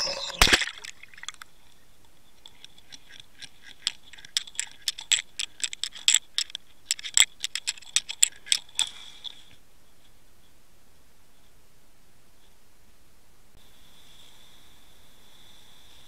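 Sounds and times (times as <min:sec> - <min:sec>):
faint high whine: 0:00.0 - 0:00.9
sharp clicks underwater: 0:00.0 - 0:08.9.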